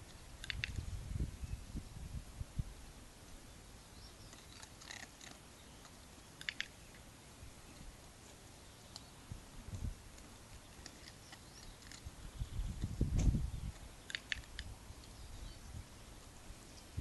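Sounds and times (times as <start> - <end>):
faint small ticks: 0.0 - 0.8, 4.2 - 7.0, 8.8 - 9.1.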